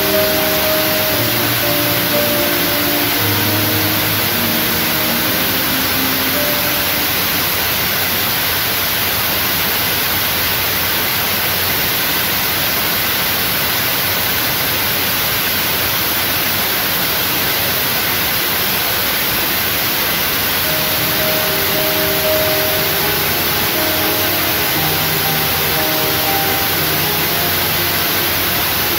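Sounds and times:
loud steady hiss: 0.0 - 28.9.

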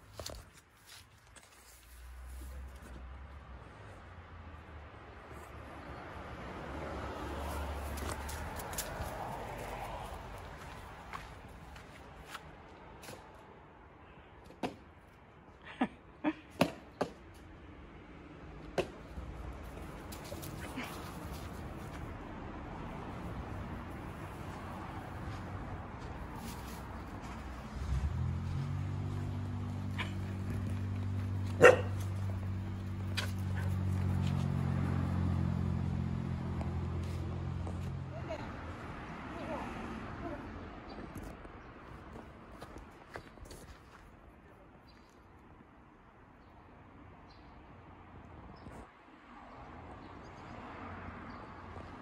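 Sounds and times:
dog barking sharply: 31.6 - 32.0.

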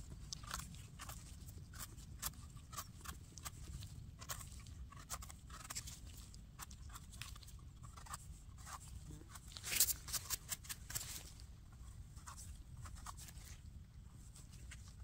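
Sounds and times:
knife scraping mushroom stem: 0.2 - 11.4.

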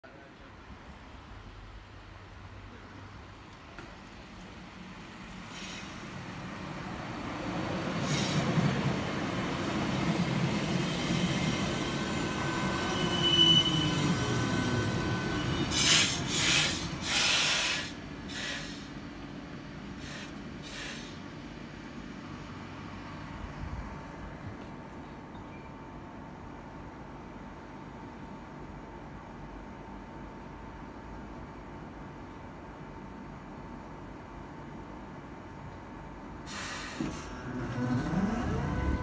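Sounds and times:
standing train humming: 3.9 - 24.7, 37.0 - 39.0
short loud hisses: 5.5 - 6.0, 15.7 - 18.9, 20.0 - 21.2, 36.5 - 37.4
high squeal: 10.9 - 16.8, 37.0 - 39.0
train wheels and motors rumbling: 35.7 - 39.0
falling brake whine: 36.7 - 39.0.

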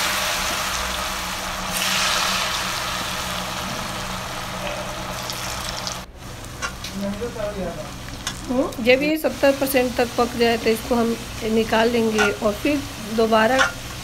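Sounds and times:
potatoes sizzling in hot oil: 0.0 - 14.0.

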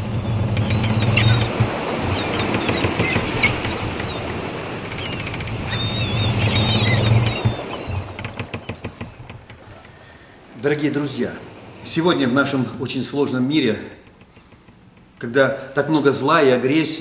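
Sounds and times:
low hum: 0.0 - 10.6
bird-like chirps: 5.0 - 8.1
gliding whistles: 5.0 - 8.2.

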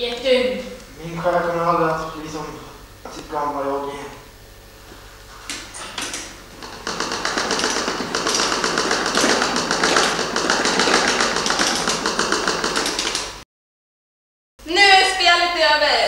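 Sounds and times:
rapid dense clicking: 5.5 - 13.4.

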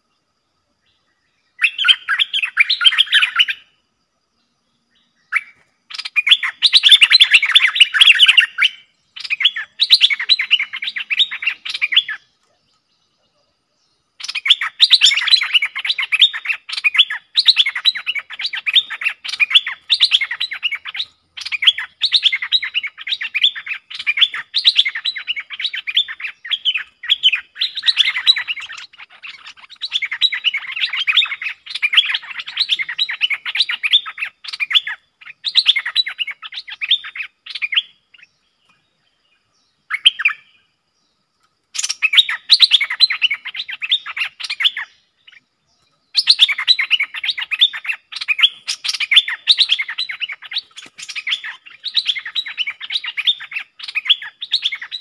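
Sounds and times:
birds singing chattering chirps: 0.0 - 55.0.

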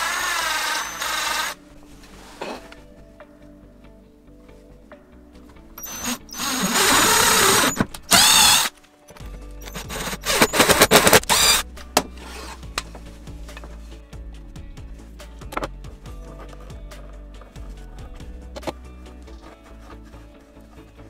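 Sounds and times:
electric drill boring into wood: 0.0 - 1.6, 5.8 - 8.7, 9.6 - 11.6
background music: 0.0 - 21.0.

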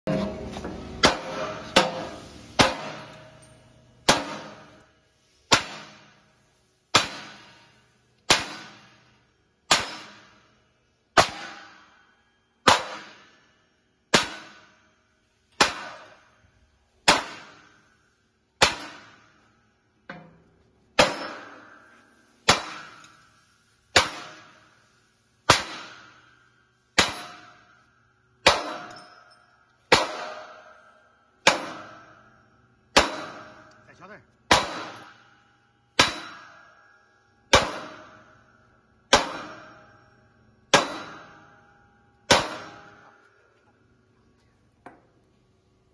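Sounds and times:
sledgehammer clanging on steel: 0.1 - 4.9, 20.1 - 23.3, 25.5 - 27.8, 28.4 - 43.6.

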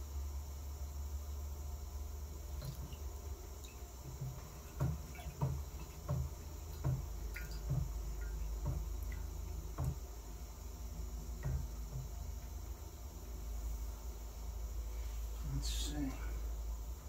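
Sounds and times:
steady low hum: 0.0 - 17.0
engine soft knocks: 2.6 - 10.2, 11.3 - 12.6.

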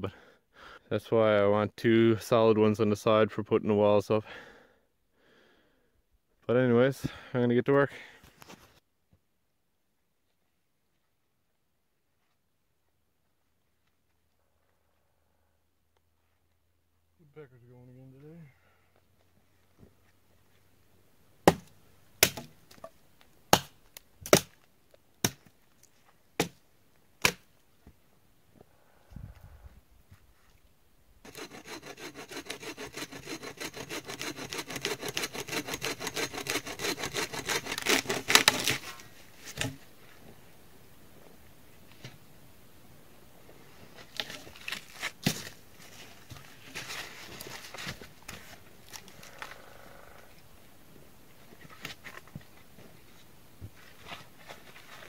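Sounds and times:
axe chopping wood: 21.4 - 22.9, 23.5 - 24.6, 25.2 - 25.5, 26.4 - 26.6, 27.2 - 27.5
pole rustling through brush: 43.8 - 49.6.

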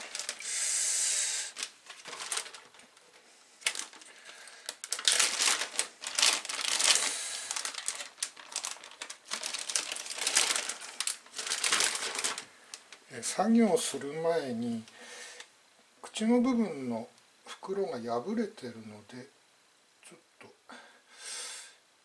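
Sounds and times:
plastic bag crinkling: 0.0 - 0.6, 1.2 - 13.3.

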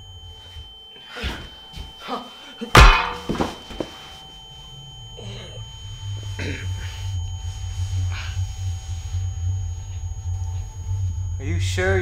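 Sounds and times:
high ringing tones: 0.0 - 12.0
low droning hum: 0.0 - 12.0.

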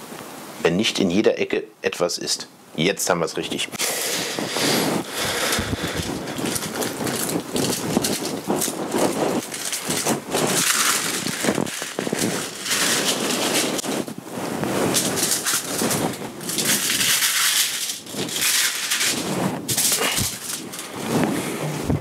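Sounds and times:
aluminium foil crinkling: 3.8 - 21.2.

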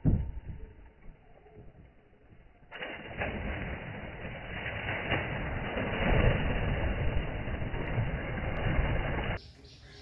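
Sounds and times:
heavy splashing and churning water: 2.6 - 9.4.

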